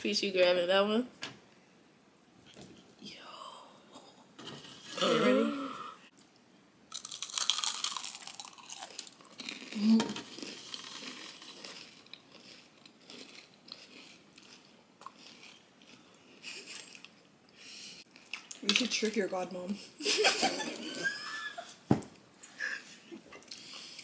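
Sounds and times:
person humming mm: 5.0s - 6.0s, 9.8s - 10.2s
vocal exclamation: 5.0s - 6.0s
crunching bites: 6.9s - 16.0s
chewing: 6.9s - 18.6s.

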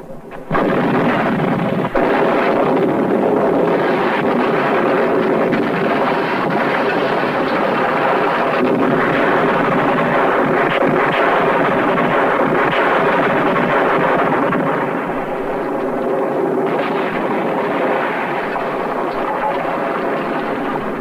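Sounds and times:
artillery shells exploding: 0.0s - 21.0s
flying debris: 0.0s - 21.0s.

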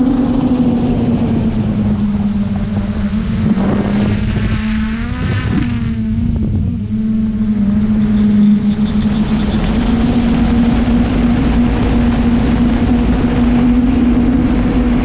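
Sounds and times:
drone propellers humming: 0.0s - 15.0s
wind noise on microphone: 0.0s - 15.0s.

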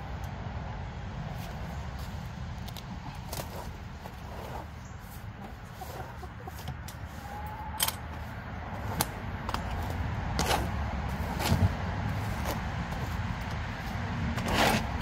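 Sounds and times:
rake scraping through litter: 3.1s - 7.5s, 8.2s - 15.0s
chicken call: 5.9s - 7.9s.

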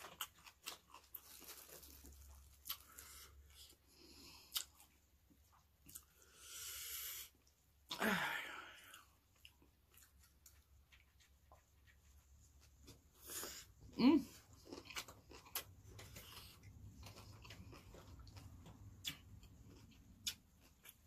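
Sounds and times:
chewing with wet mouth clicks: 4.4s - 6.2s, 14.5s - 21.0s
breathy sounds: 6.2s - 9.2s.

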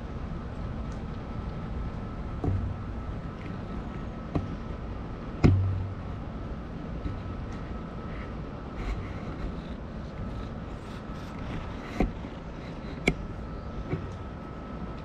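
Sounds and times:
faint steady hum: 0.0s - 15.0s
low outdoor rumble: 0.0s - 15.0s
sharp knocks: 2.4s - 2.8s, 5.4s - 6.0s.

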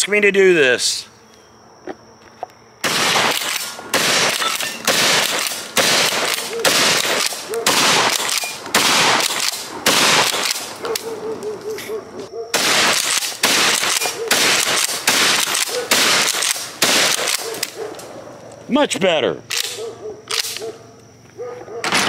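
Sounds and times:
shotgun shots: 2.8s - 10.8s, 12.5s - 17.8s.

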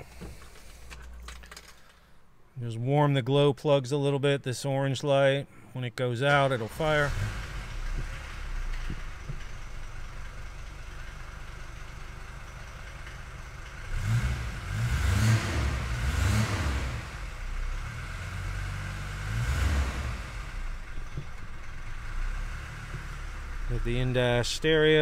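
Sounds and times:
diesel engine starting and revving: 6.3s - 25.0s.

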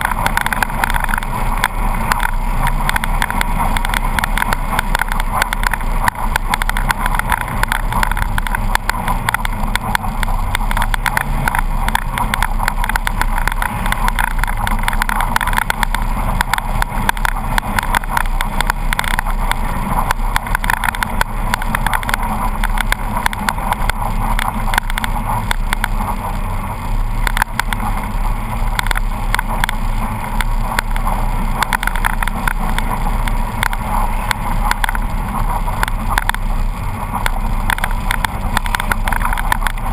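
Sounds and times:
rattling and knocking of vehicle: 0.0s - 39.9s
twin-cylinder engine running: 0.0s - 39.9s.

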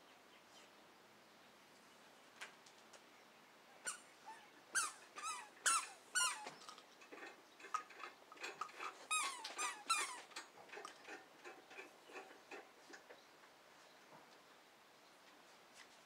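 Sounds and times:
high-pitched animal calls: 3.8s - 6.8s, 8.8s - 10.5s.

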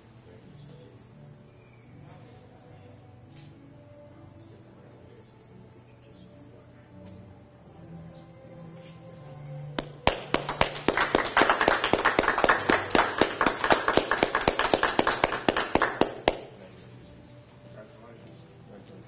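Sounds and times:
audience applauding: 9.8s - 16.5s.

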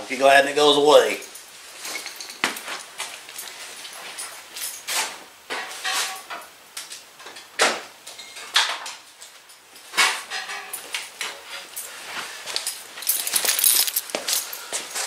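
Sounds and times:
hand tools knocking and clinking: 13.0s - 14.6s.

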